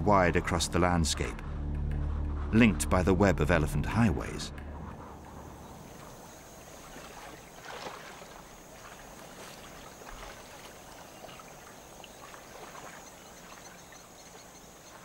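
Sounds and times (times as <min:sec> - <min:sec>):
distant water splashing: 0:04.2 - 0:15.0.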